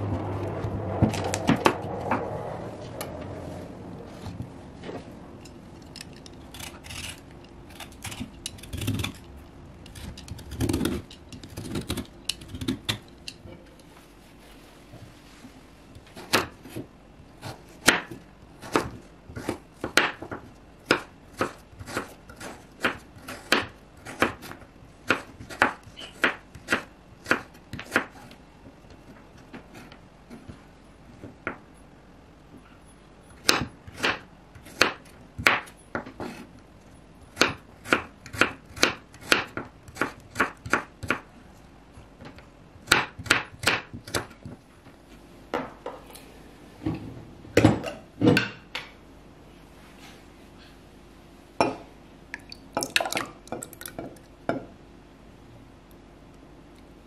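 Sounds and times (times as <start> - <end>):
knife chopping on wooden board: 42.9 - 44.4.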